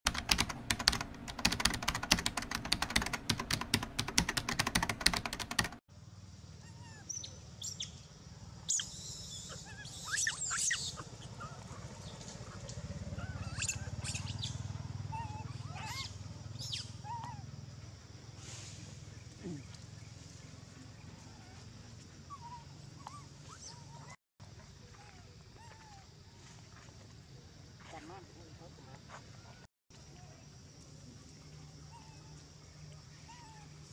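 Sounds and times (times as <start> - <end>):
rapid loud clicks: 0.1 - 5.8.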